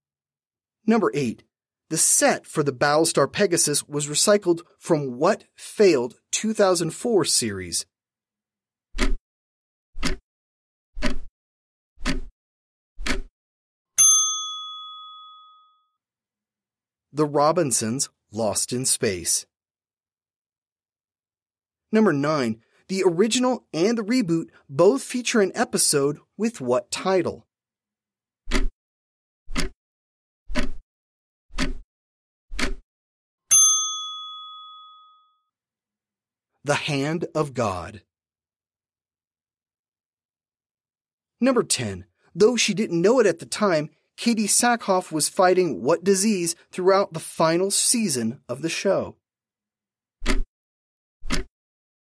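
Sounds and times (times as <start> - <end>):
timer ticking: 10.0 - 10.2, 12.0 - 12.3, 29.5 - 29.8, 30.5 - 30.8, 31.6 - 31.8, 32.6 - 32.8
bell ding: 14.0 - 16.0, 33.5 - 35.4
timer knocks: 31.6 - 31.8.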